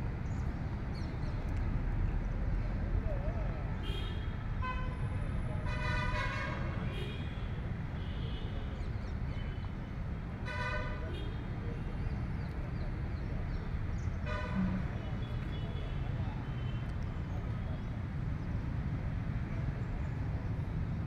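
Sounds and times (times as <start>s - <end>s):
traffic rumble: 0.0s - 21.0s
wind: 0.0s - 21.0s
vehicle horns tooting: 5.6s - 8.5s, 10.4s - 11.4s, 14.2s - 16.8s.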